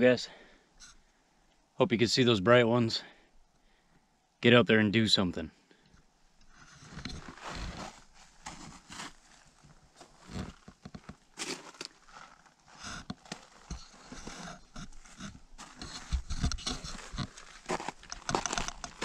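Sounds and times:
rustling and scraping: 0:06.5 - 0:19.0
footsteps crunching on snow: 0:06.8 - 0:19.0.

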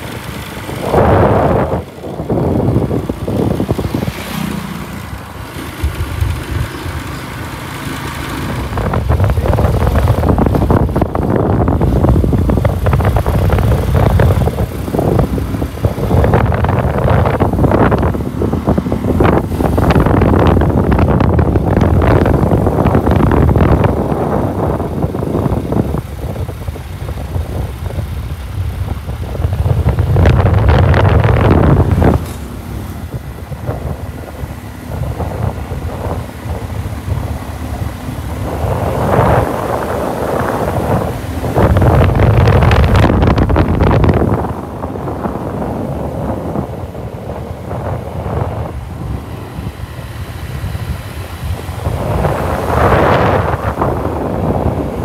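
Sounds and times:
motorcycle running: 0:00.0 - 0:55.0
wind buffeting microphone: 0:00.0 - 0:55.0.

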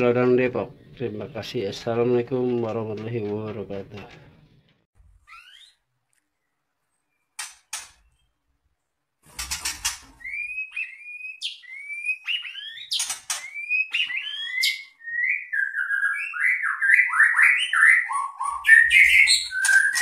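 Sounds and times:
bird singing whistled notes: 0:10.2 - 0:20.0.

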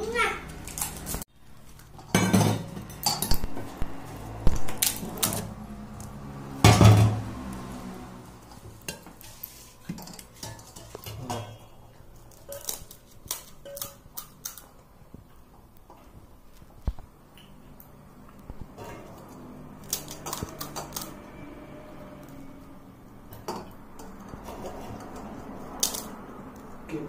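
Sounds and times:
metal bowls and plates clinking: 0:01.7 - 0:03.8, 0:08.5 - 0:14.6, 0:23.3 - 0:26.1.

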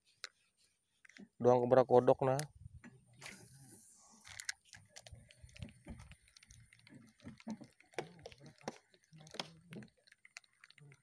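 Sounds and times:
short hiss: 0:03.2 - 0:04.3
fishing rod and reel clicks: 0:03.2 - 0:11.0.

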